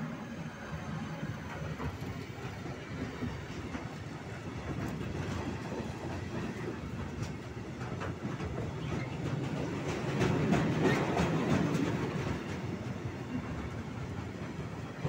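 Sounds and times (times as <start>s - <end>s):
steel wheels rumbling on rail: 0.0s - 15.0s
wheels clacking over rail joints: 4.6s - 14.6s.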